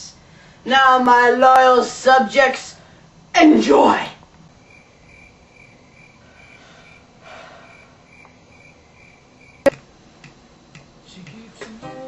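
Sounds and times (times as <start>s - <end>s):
cricket chirping: 4.6s - 9.8s.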